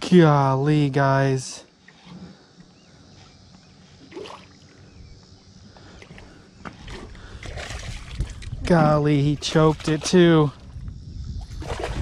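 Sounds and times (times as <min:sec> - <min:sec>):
water lapping: 0:05.7 - 0:10.8
wind noise: 0:06.7 - 0:12.0.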